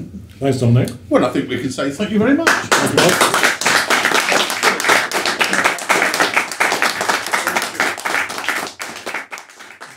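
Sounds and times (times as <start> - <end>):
audience applause: 2.5 - 9.9.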